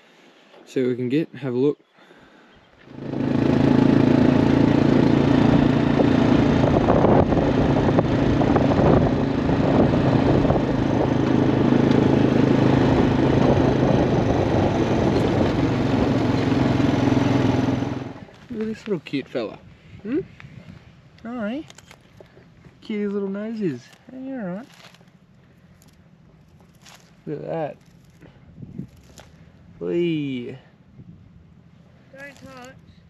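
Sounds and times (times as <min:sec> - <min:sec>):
quad bike engine running: 0:02.8 - 0:18.7, 0:31.6 - 0:33.0.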